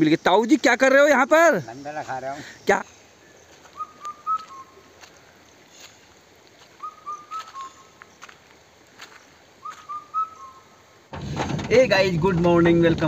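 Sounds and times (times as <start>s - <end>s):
bird whistling song: 3.3s - 4.9s, 6.7s - 8.0s, 9.6s - 10.9s.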